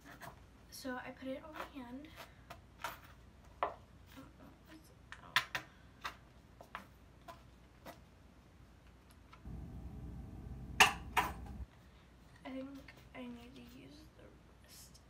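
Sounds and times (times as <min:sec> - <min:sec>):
low rumble: 0:09.5 - 0:11.6.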